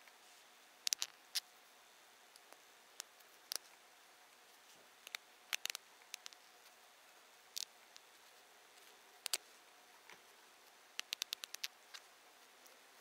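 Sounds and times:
knitting needles clicking: 0.9s - 1.1s, 5.0s - 6.4s, 9.2s - 9.4s, 11.0s - 11.7s.

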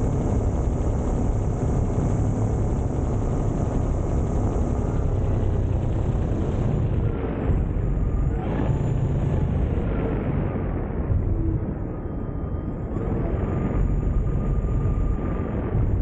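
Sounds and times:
electric motor and propeller: 0.0s - 11.5s.

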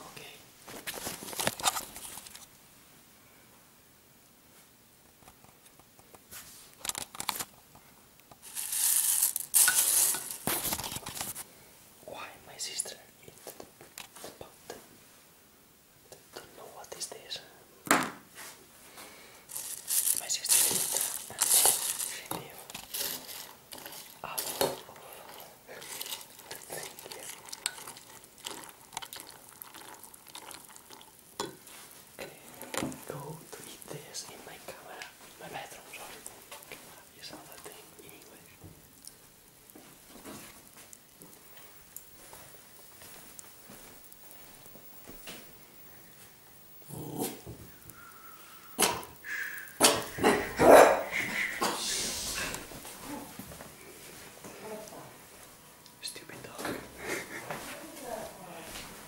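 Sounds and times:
plastic bag crinkling: 8.4s - 11.4s, 19.5s - 34.0s.

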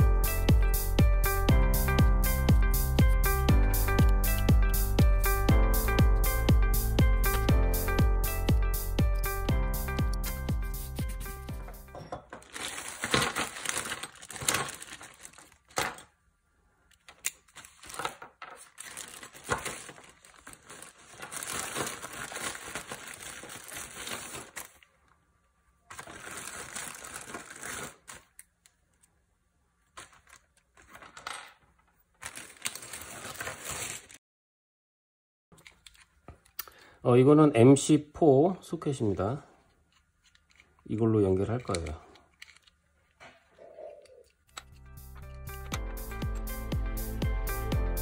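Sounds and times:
plastic bag crinkling: 12.2s - 16.1s, 17.1s - 25.1s, 25.8s - 28.4s, 29.9s - 34.2s
plastic connectors clicking on wood: 39.9s - 43.2s.

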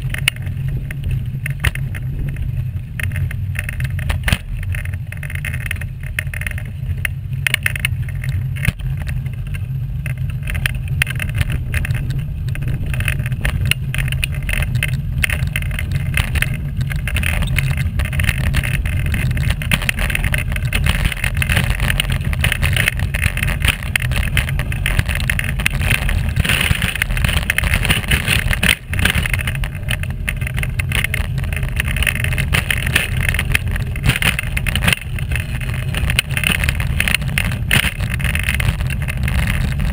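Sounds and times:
wheels rolling along path: 0.0s - 39.9s.

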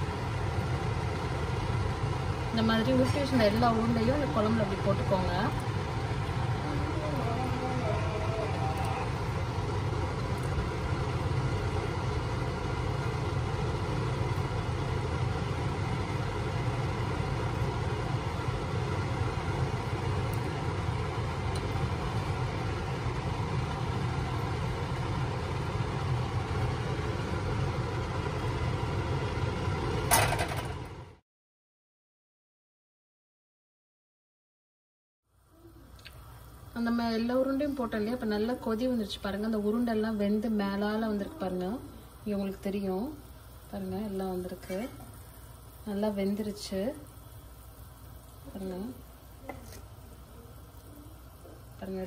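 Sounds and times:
low rumbling hum: 0.0s - 31.2s.

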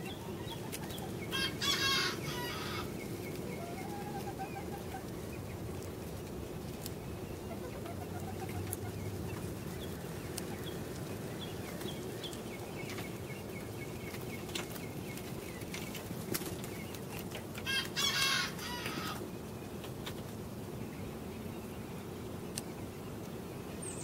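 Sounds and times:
chickens chirping: 0.0s - 24.0s
cockerel crowing: 1.0s - 2.9s, 17.6s - 19.2s.

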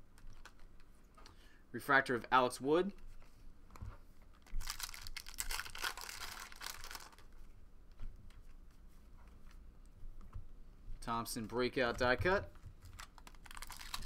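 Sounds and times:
foil wrapper crinkling: 4.3s - 7.4s, 12.8s - 14.0s.

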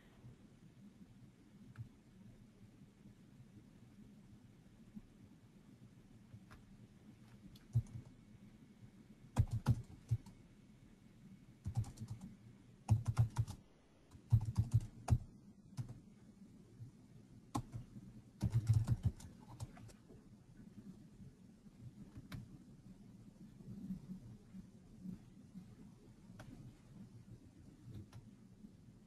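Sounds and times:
typing on computer keyboard: 7.6s - 8.1s, 9.4s - 10.4s, 11.6s - 12.3s, 12.9s - 16.0s, 17.5s - 20.0s.

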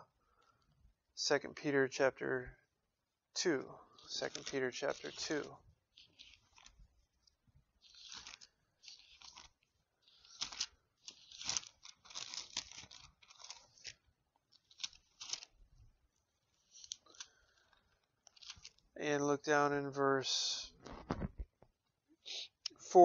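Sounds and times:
pages being turned: 4.0s - 15.8s, 16.4s - 18.9s, 20.8s - 21.6s.

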